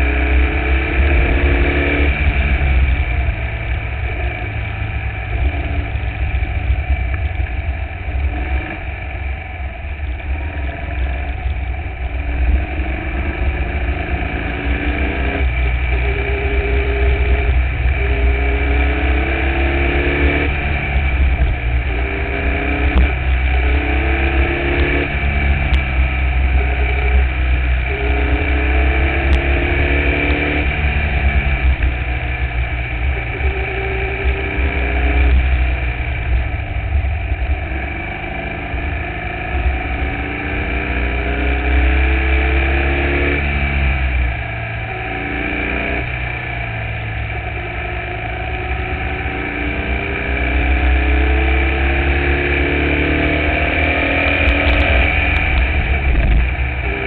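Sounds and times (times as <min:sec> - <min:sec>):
race car engine revving: 0:00.0 - 0:57.0
wind rumble on microphone: 0:54.1 - 0:57.0.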